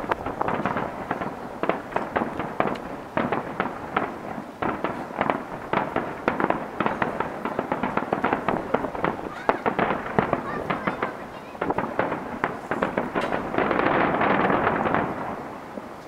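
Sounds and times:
firework shells bursting: 0.0s - 16.0s.

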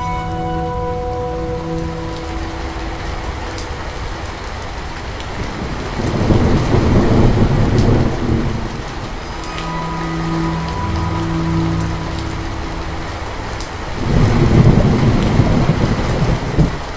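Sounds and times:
steady rain falling: 0.0s - 16.9s
thunder rolling: 2.4s - 9.4s, 12.8s - 16.9s.

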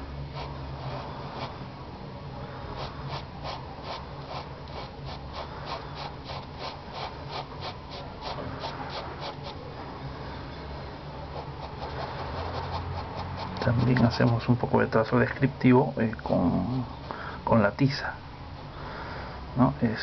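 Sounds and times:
chalk pencil scratching on card: 0.3s - 1.6s, 2.8s - 9.6s, 11.4s - 14.5s.

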